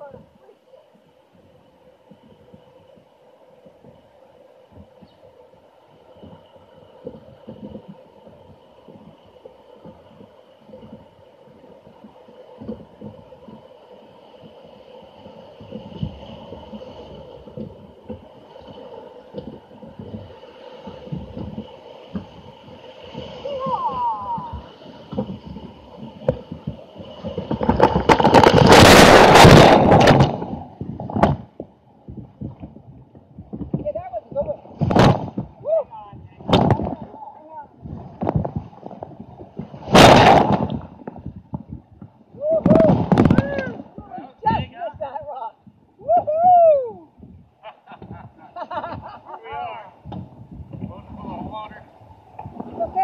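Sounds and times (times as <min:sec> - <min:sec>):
rushing river water: 0:00.0 - 0:48.6, 0:49.2 - 0:53.0
whitewater rushing: 0:14.9 - 0:31.4, 0:33.9 - 0:40.9
muffled thumps and knocks: 0:25.1 - 0:35.6, 0:36.4 - 0:37.1, 0:37.8 - 0:44.1, 0:50.0 - 0:51.4.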